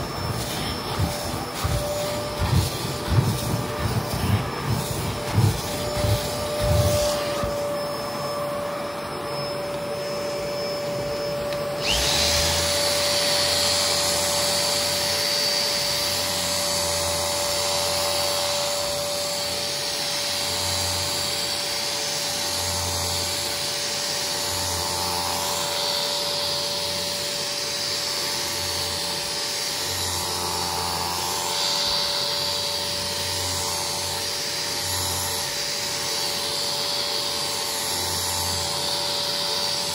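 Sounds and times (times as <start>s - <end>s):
carpet cleaner suction whine: 0.0s - 39.9s.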